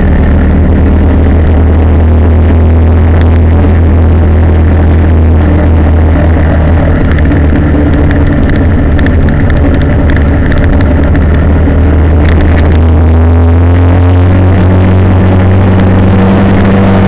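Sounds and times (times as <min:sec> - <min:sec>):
vehicle engine droning: 0:00.0 - 0:17.0.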